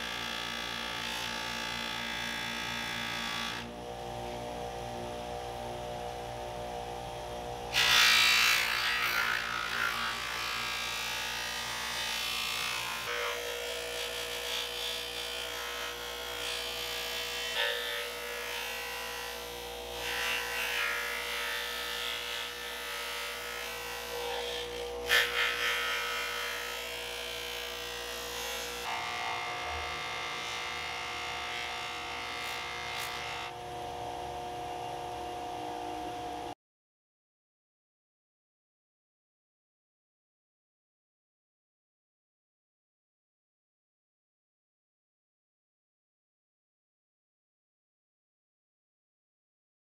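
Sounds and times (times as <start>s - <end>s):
bench grinder motor running: 0.0s - 36.5s.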